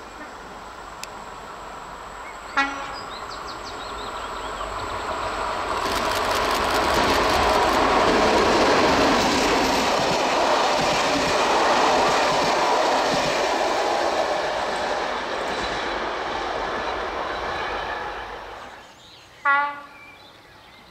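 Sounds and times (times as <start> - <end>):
locomotive engine passing: 0.0 - 18.8
train horn toot: 2.5 - 3.2, 19.4 - 20.0.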